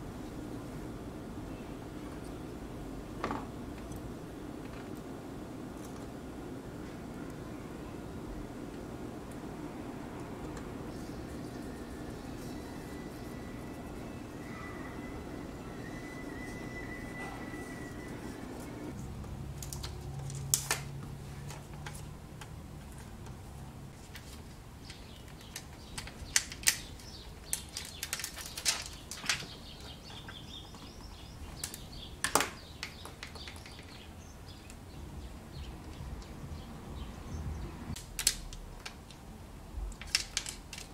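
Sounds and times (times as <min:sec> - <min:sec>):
plastic film crinkling: 0:24.0 - 0:30.3.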